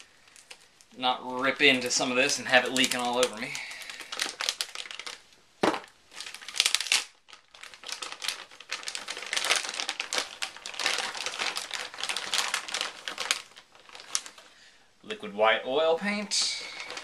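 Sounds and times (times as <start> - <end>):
packaging crinkling and crackling: 0.0 - 14.8, 15.8 - 17.0.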